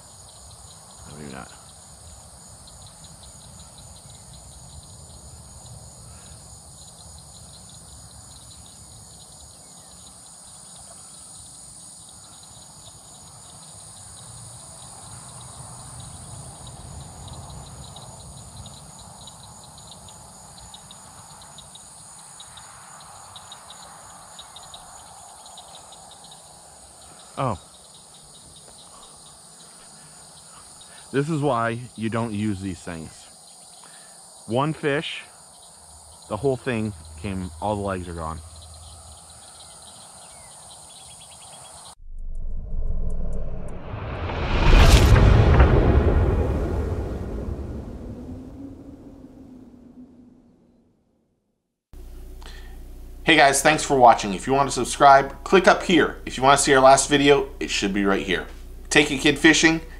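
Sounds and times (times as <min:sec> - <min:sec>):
insects trilling: 0:00.0 - 0:42.0, 0:52.0 - 0:59.9
low rumble: 0:42.0 - 0:51.0.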